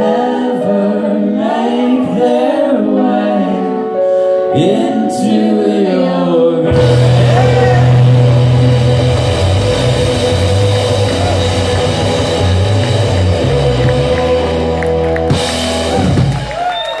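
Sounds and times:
live rock band playing: 6.7s - 17.0s.

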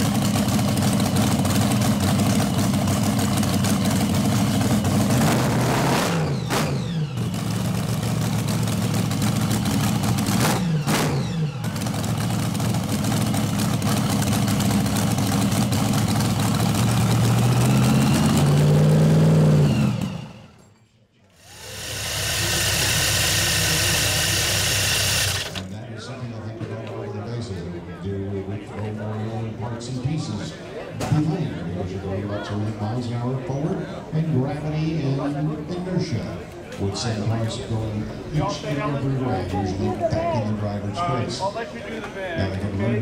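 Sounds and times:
drag car engine idling and revving: 0.0s - 20.6s, 21.4s - 25.8s.

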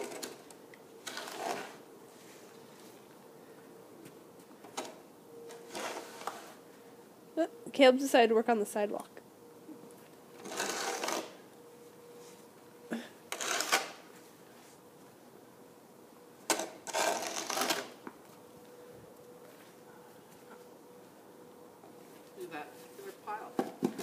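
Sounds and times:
snow shovel scraping pavement: 1.0s - 2.5s, 5.5s - 6.6s, 10.4s - 11.4s, 12.9s - 14.3s, 16.5s - 18.0s.

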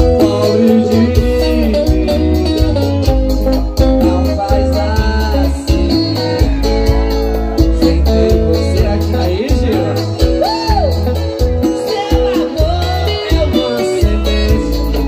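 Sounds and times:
live band playing: 0.0s - 15.0s
man singing into microphone: 0.0s - 15.0s.

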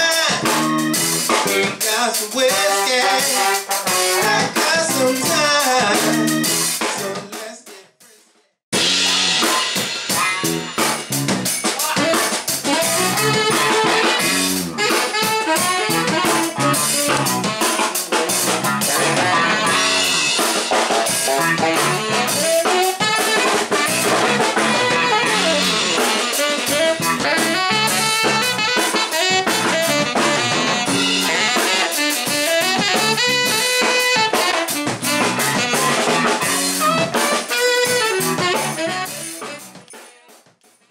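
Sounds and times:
funk band playing live: 0.0s - 7.4s, 8.7s - 40.8s
horn section: 2.4s - 6.9s, 11.8s - 39.8s.

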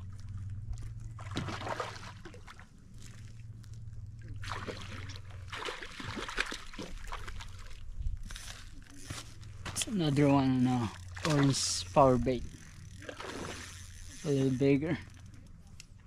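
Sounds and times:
fish splashing in water: 1.1s - 3.2s, 4.4s - 7.9s, 13.0s - 13.8s.

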